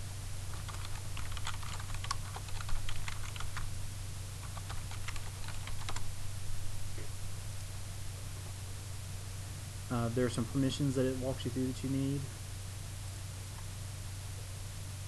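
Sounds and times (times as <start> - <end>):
keyboard typing: 0.5 - 3.6, 4.4 - 6.0.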